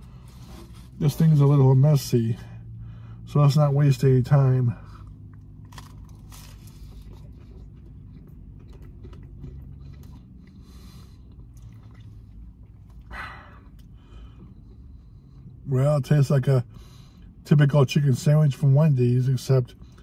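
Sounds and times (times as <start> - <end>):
low steady hum: 0.0 - 20.0
man chewing crunchy food: 5.0 - 15.6.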